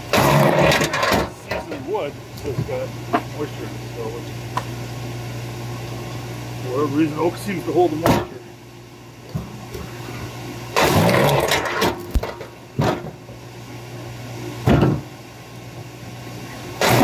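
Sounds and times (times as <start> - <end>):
wood splitting bursts: 0.0 - 1.6, 10.7 - 13.1, 16.8 - 17.0
log splitter motor humming: 0.0 - 17.0.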